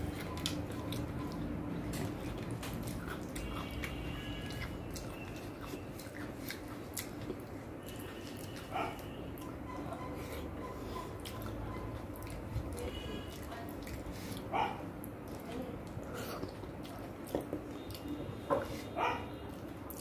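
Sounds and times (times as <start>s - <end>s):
person chewing: 0.0s - 20.0s.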